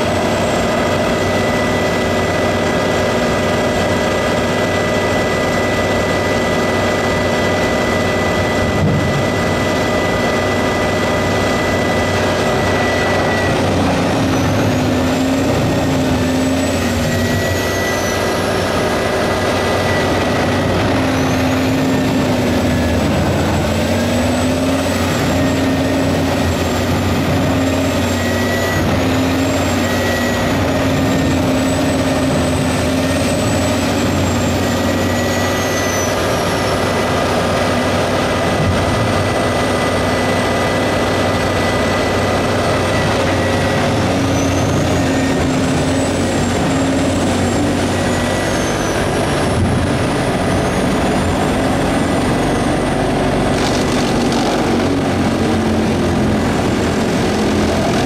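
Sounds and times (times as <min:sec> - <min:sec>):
diesel engine roaring: 0:00.0 - 0:58.0.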